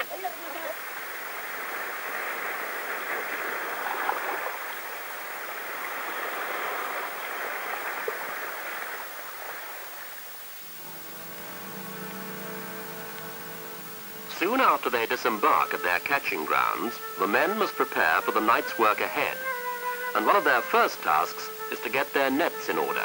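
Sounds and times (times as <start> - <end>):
sea water rushing: 0.0 - 23.0
steady tones: 10.6 - 23.0.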